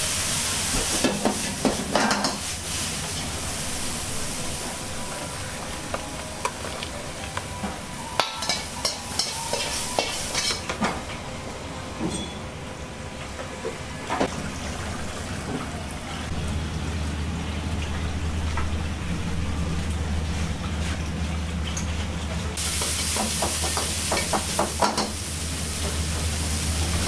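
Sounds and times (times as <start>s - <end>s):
food sizzling in wok: 0.0s - 10.8s, 22.6s - 27.0s.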